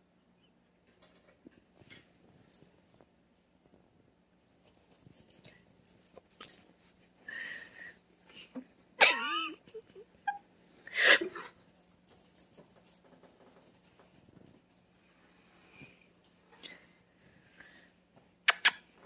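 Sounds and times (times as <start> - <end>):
small clicks and rustles: 0.8 - 7.2, 11.6 - 17.4
stifled wheezy laughter: 8.3 - 11.6.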